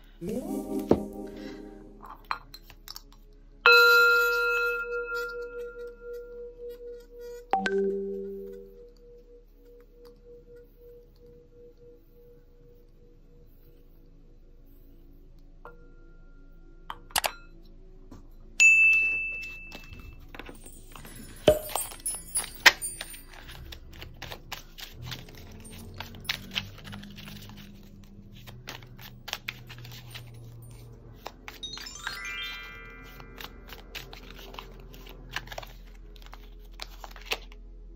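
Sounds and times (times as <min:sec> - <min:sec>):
soft background music: 0:00.0 - 0:37.9
small bell ringing: 0:20.6 - 0:23.5
ripple of chime notes: 0:31.6 - 0:33.6.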